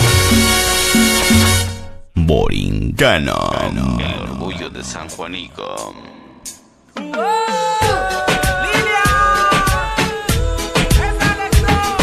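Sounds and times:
dance music with drums and bass: 7.9s - 12.0s.

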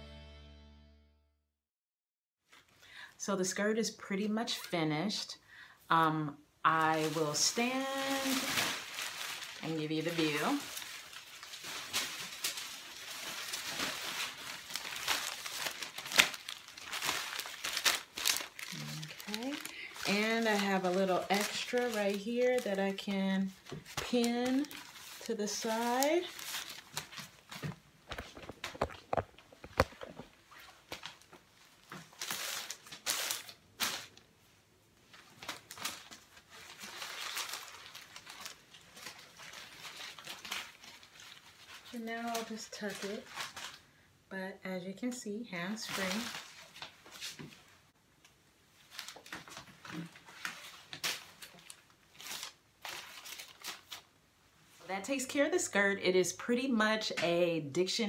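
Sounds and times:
paper strips rustling and crinkling: 6.7s - 34.3s, 35.0s - 43.9s, 45.7s - 47.8s, 48.7s - 54.1s
sharp paper crackles: 6.8s - 34.2s, 35.1s - 43.9s, 45.8s - 47.6s, 48.8s - 54.1s.

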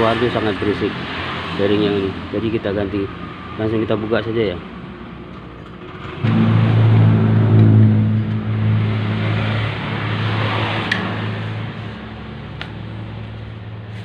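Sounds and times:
engine starting and running: 5.3s - 12.2s.

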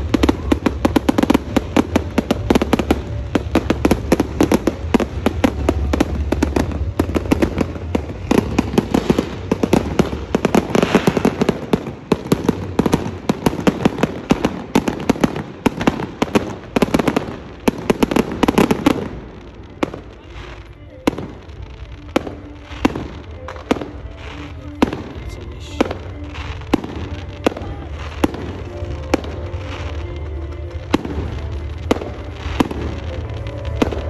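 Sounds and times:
low rumble: 0.0s - 11.3s
fireworks bangs and crackling: 0.0s - 34.0s.

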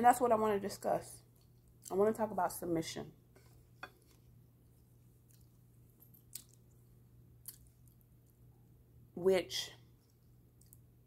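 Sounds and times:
chewing food: 6.2s - 6.8s, 7.4s - 8.4s, 10.0s - 10.9s
mouth clicks and smacks: 6.3s - 6.7s.

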